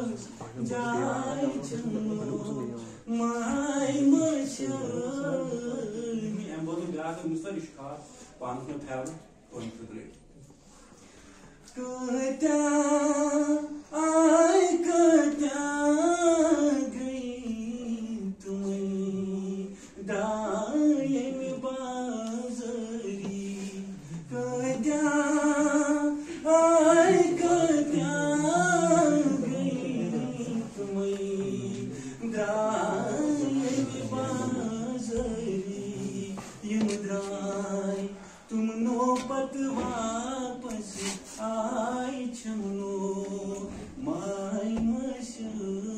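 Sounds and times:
man singing unaccompanied: 0:00.0 - 0:07.5, 0:11.7 - 0:45.9.

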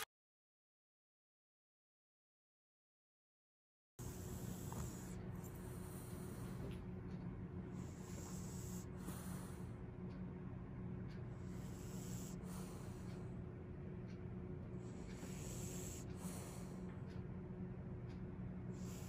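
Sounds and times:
dog breathing noisily: 0:04.0 - 0:07.0, 0:07.6 - 0:09.8, 0:11.3 - 0:13.4, 0:14.7 - 0:17.2, 0:18.7 - 0:19.0
steady low hum: 0:04.0 - 0:19.0.

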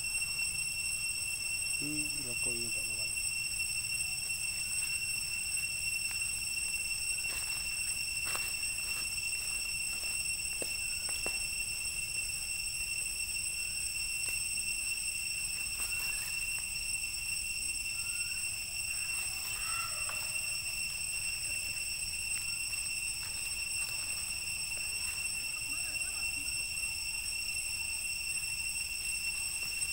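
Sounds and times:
insects droning: 0:00.0 - 0:29.9
faint squeaky calls: 0:15.8 - 0:16.4, 0:17.9 - 0:21.4
rustling in dry leaves: 0:19.1 - 0:20.4.

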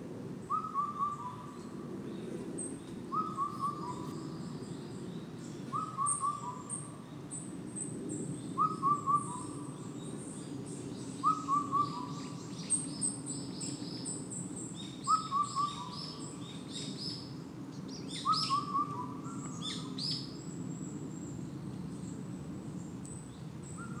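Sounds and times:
small songbirds chirping: 0:00.4 - 0:24.0
cuckoo singing: 0:00.5 - 0:01.4, 0:03.1 - 0:04.2, 0:08.6 - 0:09.6, 0:11.2 - 0:12.2, 0:18.2 - 0:19.7.

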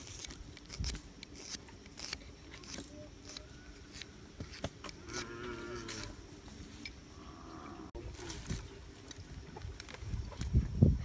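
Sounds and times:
knife whittling wood: 0:00.0 - 0:06.1.

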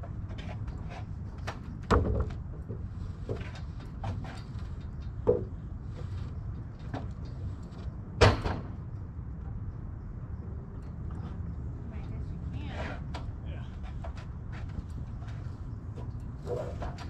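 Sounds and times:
light wooden knocks and clicks: 0:00.0 - 0:10.0.

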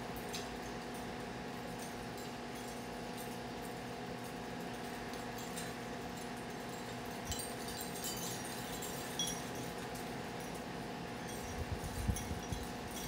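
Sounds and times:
steady low hum: 0:00.0 - 0:13.0
faint high tinkling: 0:05.2 - 0:13.0.

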